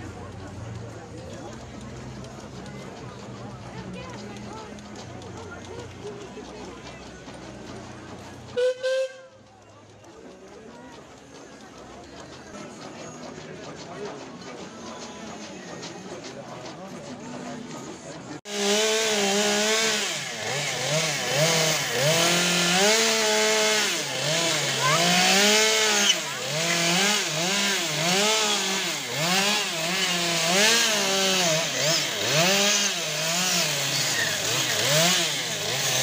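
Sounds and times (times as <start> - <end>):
small engine revving: 18.4 - 36.0.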